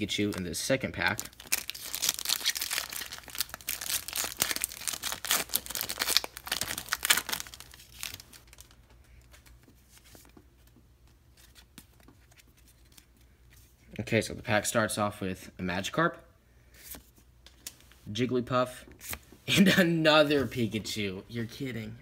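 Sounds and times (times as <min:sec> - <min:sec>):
card pack wrapper tearing: 0:00.0 - 0:08.8.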